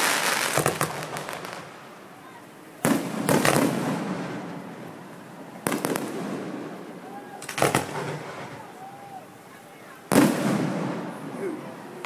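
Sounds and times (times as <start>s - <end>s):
firework shells bursting: 7.4s - 8.6s.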